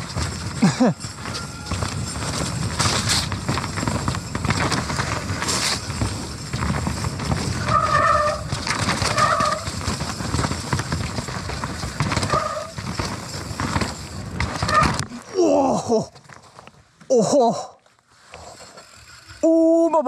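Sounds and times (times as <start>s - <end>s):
bike rattling over rough trail: 0.0s - 20.0s
disc brakes honking: 1.0s - 3.0s.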